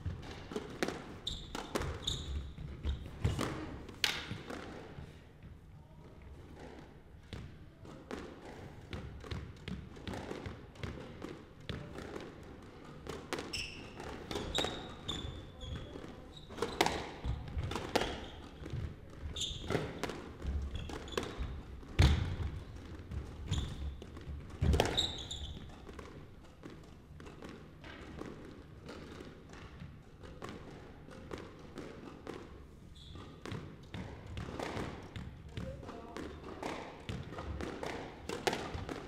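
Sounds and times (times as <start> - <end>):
squash ball smacking: 0.1 - 2.0, 2.6 - 4.9, 7.2 - 15.0, 16.6 - 32.6, 33.2 - 39.0
sneakers squeaking on hardwood: 1.2 - 3.6, 13.5 - 17.4, 18.0 - 22.3, 23.4 - 24.0, 24.7 - 25.8, 32.9 - 33.6.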